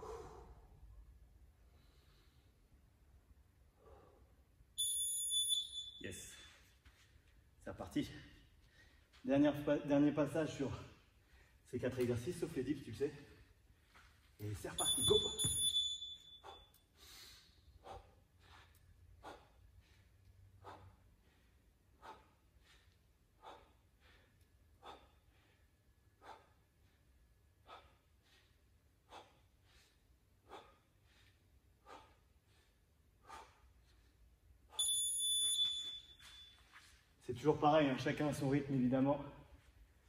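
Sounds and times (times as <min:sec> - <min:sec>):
person breathing hard: 0:00.0 - 0:00.8, 0:03.7 - 0:04.4, 0:16.4 - 0:34.3
electronic timer beeping: 0:04.8 - 0:06.0, 0:14.8 - 0:16.4, 0:34.8 - 0:36.5.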